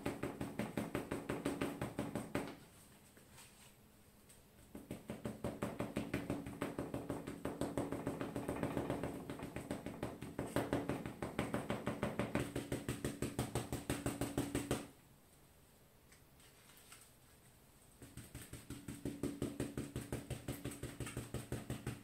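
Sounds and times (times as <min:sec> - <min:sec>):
foil ball tapping on paper: 0:00.0 - 0:02.6, 0:04.6 - 0:14.9, 0:18.0 - 0:22.0.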